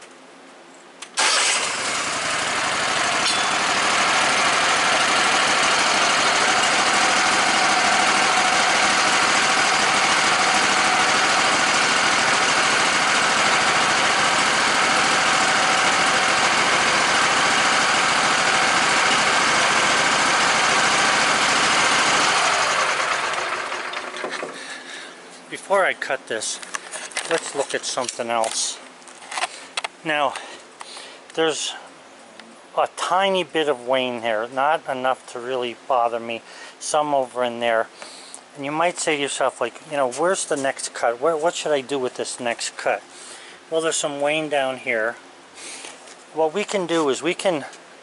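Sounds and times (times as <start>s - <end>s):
sawmill engine running: 1.2s - 25.0s.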